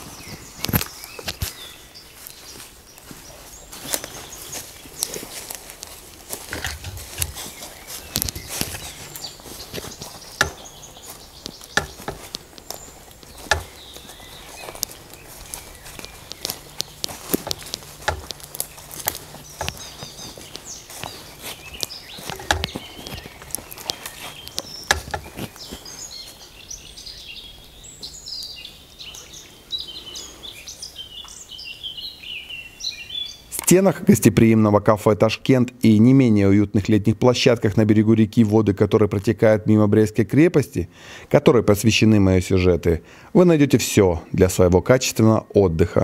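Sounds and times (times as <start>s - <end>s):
footsteps crunching dry leaves: 0.0s - 31.1s
songbirds chirping: 0.0s - 46.0s.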